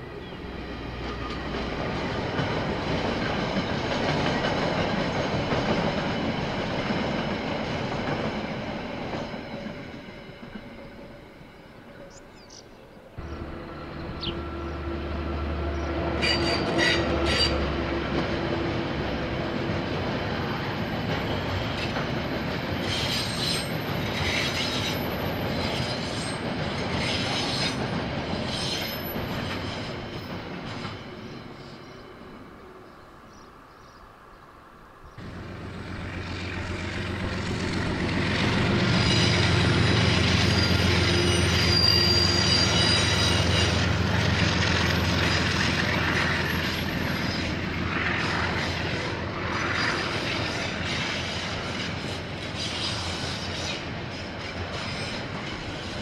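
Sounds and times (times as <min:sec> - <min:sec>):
diesel locomotive engine drone: 0:00.0 - 0:56.0
freight train rolling past: 0:00.0 - 0:56.0
train wheels squealing: 0:08.8 - 0:12.6, 0:13.3 - 0:18.3, 0:22.6 - 0:33.0, 0:38.3 - 0:56.0.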